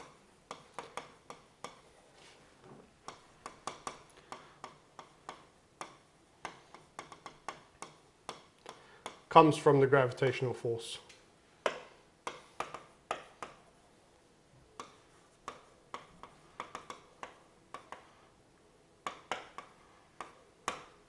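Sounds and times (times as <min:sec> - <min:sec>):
stylus tapping on writing surface: 0:03.0 - 0:09.3, 0:11.6 - 0:13.7, 0:14.8 - 0:18.3, 0:19.0 - 0:21.0.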